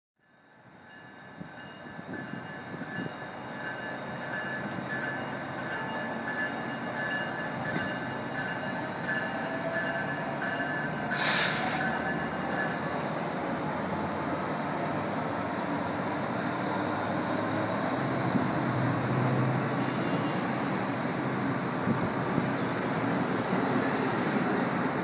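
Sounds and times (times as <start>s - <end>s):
high whine of train: 0.2s - 25.0s
loud hiss burst: 11.1s - 11.9s.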